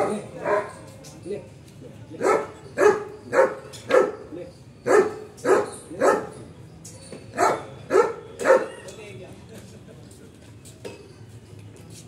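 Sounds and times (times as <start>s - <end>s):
dog barking: 0.0s - 0.8s, 2.2s - 4.2s, 4.8s - 6.3s, 7.4s - 8.8s.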